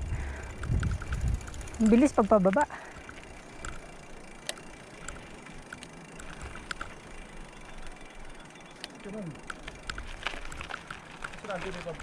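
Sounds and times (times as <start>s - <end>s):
tyre and wind rush: 0.0s - 1.8s.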